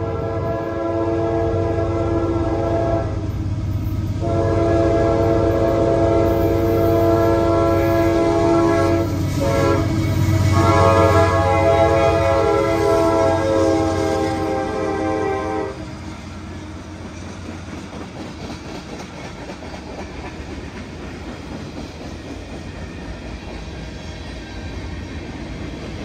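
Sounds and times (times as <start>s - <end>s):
locomotive air horn blasts: 0.0s - 3.3s, 4.2s - 15.8s.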